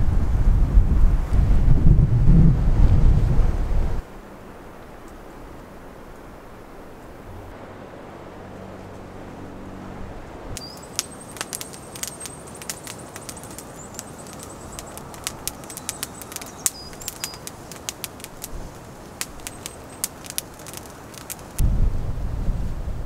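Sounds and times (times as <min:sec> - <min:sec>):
wind hiss: 0:00.0 - 0:23.0
high brief bird calls: 0:10.6 - 0:21.4
sharp crackling clicks: 0:10.6 - 0:21.6.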